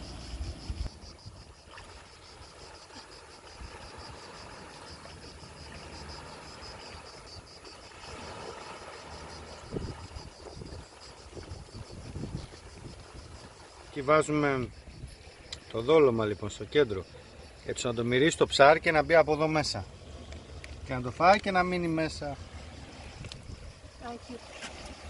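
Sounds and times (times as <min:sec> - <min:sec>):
high-pitched insect chorus: 0:00.0 - 0:25.0.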